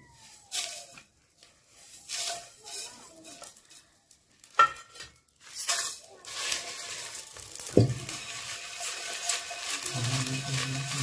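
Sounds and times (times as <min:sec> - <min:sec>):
spices rattling in steel pan: 0:00.5 - 0:11.0
pan thudding on hotplate: 0:07.7 - 0:08.2.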